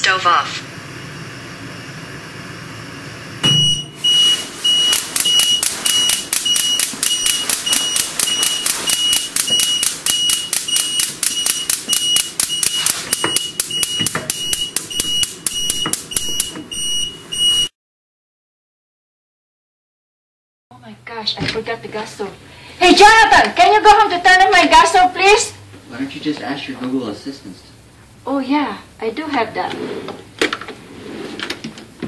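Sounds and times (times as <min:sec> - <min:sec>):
high-pitched electronic alarm beeping: 0:03.4 - 0:17.7.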